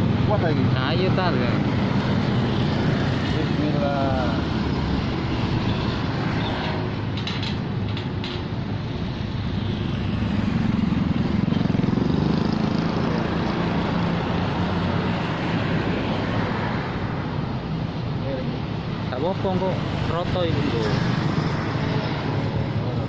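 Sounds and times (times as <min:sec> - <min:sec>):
road traffic rumble: 0:00.0 - 0:23.0
vehicle passing: 0:09.2 - 0:17.0.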